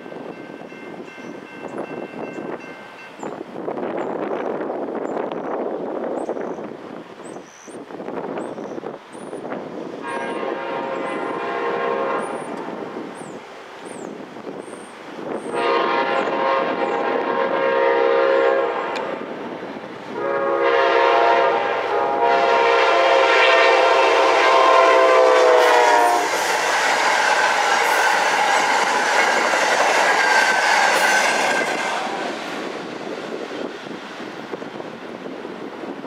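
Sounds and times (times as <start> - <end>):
train wheels rumbling on rails: 0.0 - 36.0
train horn blasts: 10.0 - 12.7, 15.5 - 19.2, 20.1 - 32.4.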